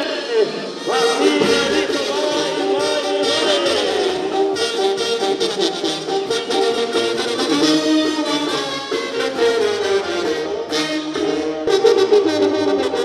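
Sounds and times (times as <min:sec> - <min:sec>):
brass band horns playing: 0:00.0 - 0:13.0
percussion beat: 0:00.8 - 0:08.0.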